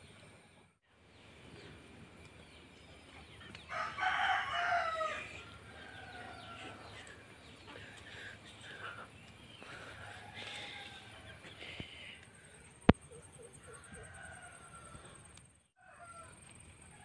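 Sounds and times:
rooster crowing: 3.7 - 7.4, 9.8 - 11.6, 13.6 - 17.0.

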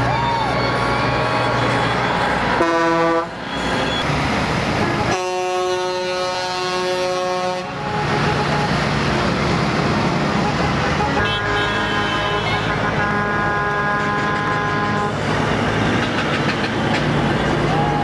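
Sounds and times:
truck engines and road noise: 0.0 - 18.0
truck air horn blasts: 2.5 - 3.9, 4.9 - 8.8, 10.3 - 15.2.

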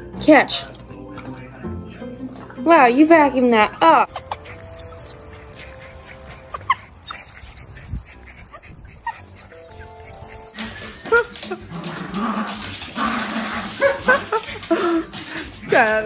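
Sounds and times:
background music: 0.0 - 15.3
dogs whimpering and yelping: 4.0 - 10.6.

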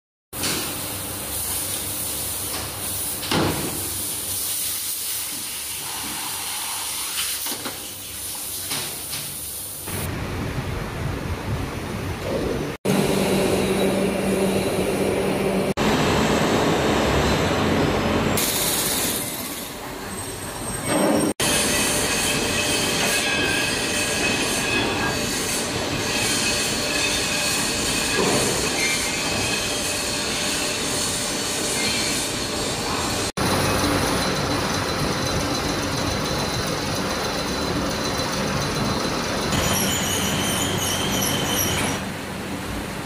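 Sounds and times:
foundry machinery din: 12.2 - 42.1
machine whining tones: 12.9 - 42.0.

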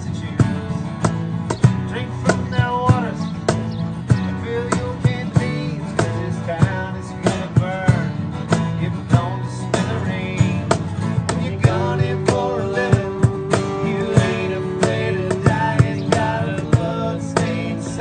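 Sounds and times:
acoustic guitars strumming: 0.0 - 18.0
cajon beat: 0.0 - 18.0
harmonica lead line: 11.5 - 18.0.

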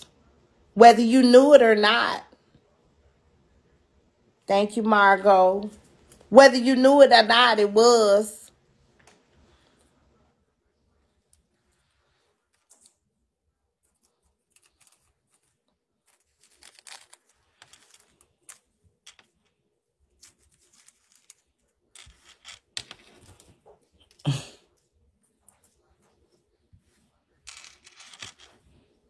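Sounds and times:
handling noise rustling and clicks: 13.8 - 24.2.

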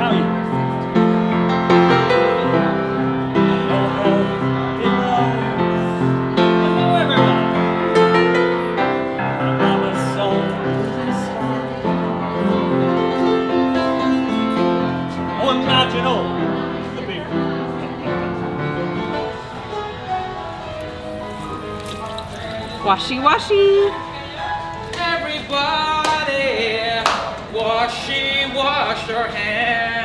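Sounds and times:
piano playing: 0.0 - 30.0.

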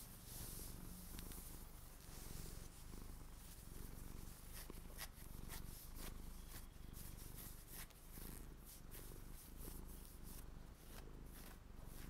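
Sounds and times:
fingernails scratching fabric socks: 4.3 - 12.0.

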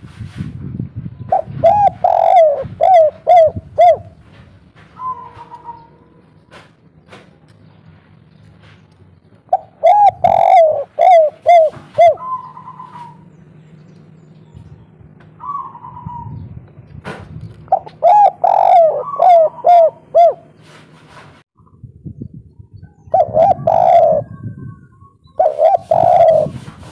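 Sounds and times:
dove cooing: 1.3 - 6.4, 9.5 - 13.3, 15.2 - 16.5, 17.7 - 20.8, 23.0 - 26.9.

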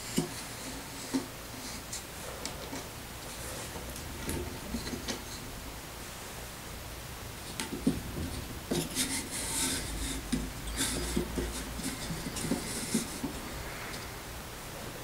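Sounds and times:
wood scraping on wood: 7.5 - 14.2.

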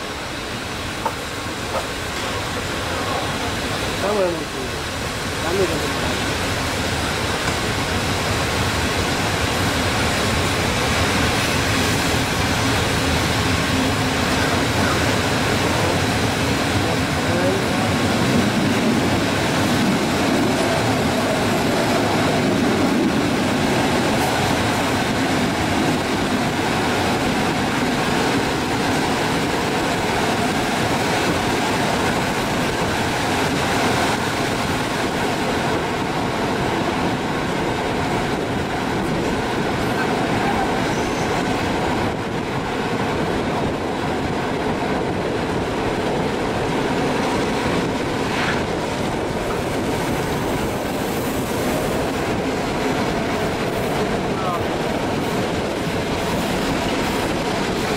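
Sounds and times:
train wheels rumbling on rails: 0.0 - 57.9.

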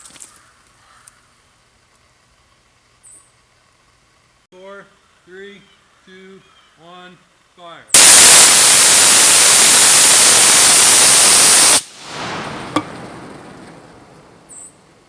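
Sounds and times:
flame hissing at nozzle: 8.0 - 14.1
sharp pop: 8.0 - 14.7
rocket motor exhaust rushing: 8.0 - 15.0.

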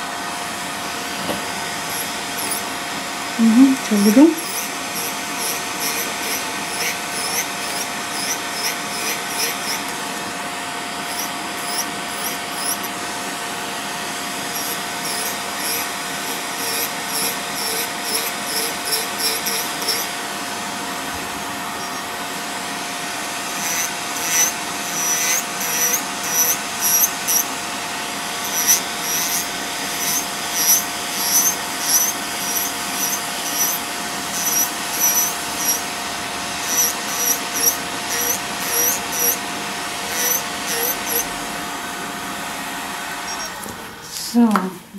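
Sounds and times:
electric nail drill whining: 0.7 - 42.4, 43.1 - 43.8
burr grinding toenail: 1.2 - 2.8, 3.5 - 10.0, 11.0 - 13.0, 14.4 - 20.2, 21.1 - 22.3, 23.4 - 27.5, 28.3 - 35.9, 36.6 - 41.3.

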